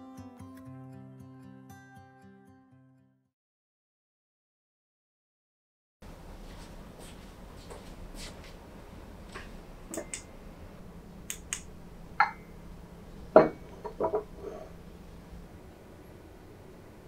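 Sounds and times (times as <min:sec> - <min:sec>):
cup clinking against saucer: 0:12.2 - 0:12.5, 0:13.3 - 0:14.7
cup knocking on wooden table: 0:13.3 - 0:14.3.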